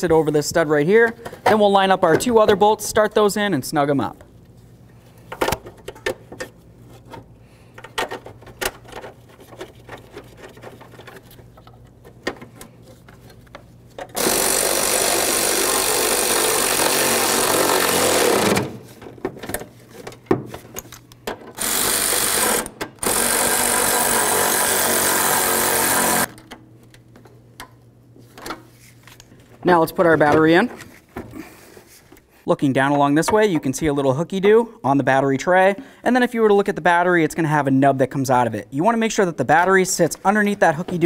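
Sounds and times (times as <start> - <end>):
cordless ratchet running bolts: 21.6 - 26.3.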